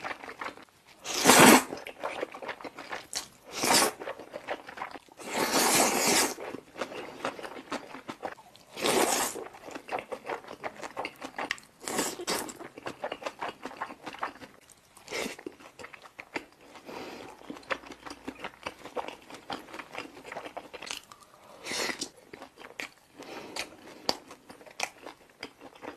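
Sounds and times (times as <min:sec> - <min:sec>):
loud noodle slurp: 0:03.5 - 0:04.0, 0:05.2 - 0:06.4.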